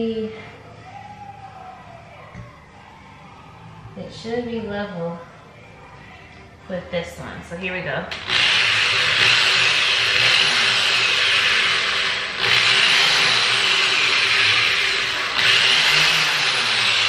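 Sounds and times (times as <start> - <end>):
power drill boring into wood: 8.1 - 17.0.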